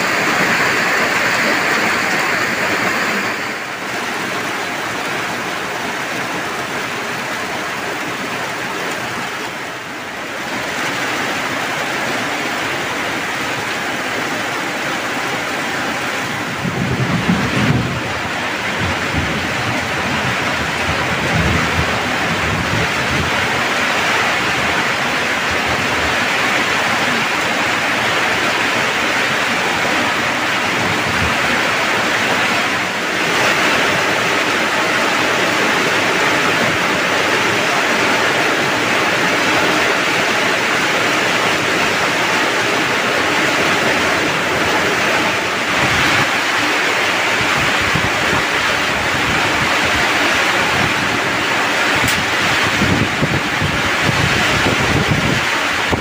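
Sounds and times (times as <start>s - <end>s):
heavy rain pouring: 0.0s - 56.0s
thunder rumbling: 16.0s - 56.0s.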